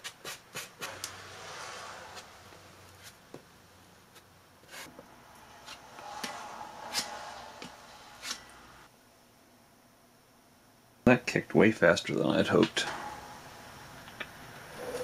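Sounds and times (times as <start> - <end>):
faint rubbing: 4.2 - 8.9.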